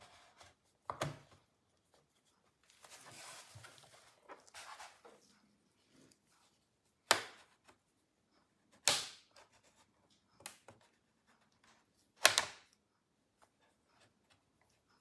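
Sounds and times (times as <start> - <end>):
plastic clips snapping loose: 12.2 - 12.7.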